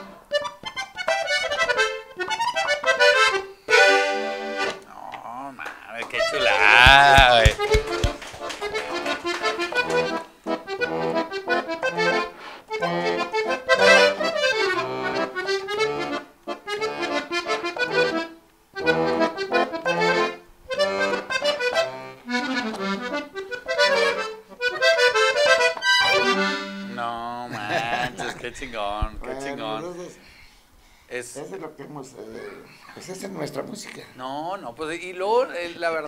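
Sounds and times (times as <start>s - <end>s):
button accordion melody: 0.0s - 4.8s, 6.1s - 27.2s.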